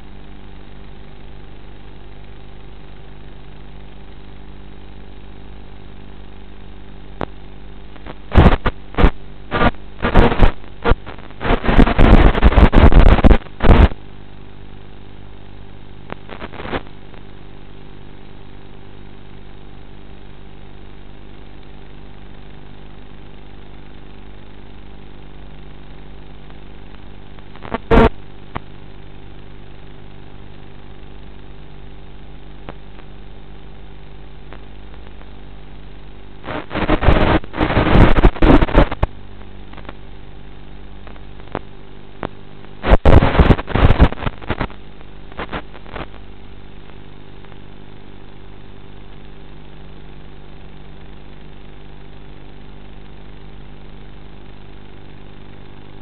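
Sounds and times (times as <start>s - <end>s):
loud crackling bursts: 7.2s - 14.1s, 16.0s - 17.4s, 22.2s - 33.4s, 36.3s - 40.1s, 40.9s - 47.7s.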